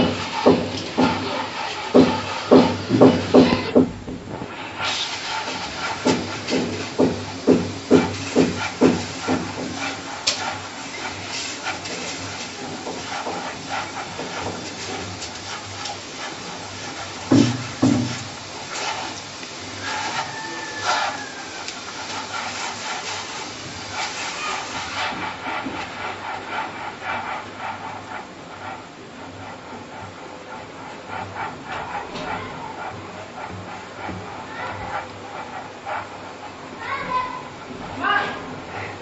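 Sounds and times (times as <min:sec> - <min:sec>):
gritty rustle of grains: 0:00.0 - 0:03.7, 0:04.4 - 0:36.5
dull thumps: 0:00.0 - 0:04.6.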